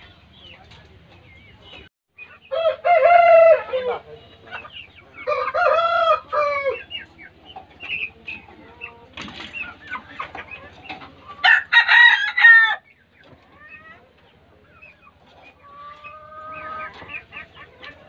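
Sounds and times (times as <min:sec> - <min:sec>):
chickens clucking: 0:00.0 - 0:18.0
rooster crowing: 0:02.5 - 0:04.0, 0:05.2 - 0:06.8, 0:11.4 - 0:12.8.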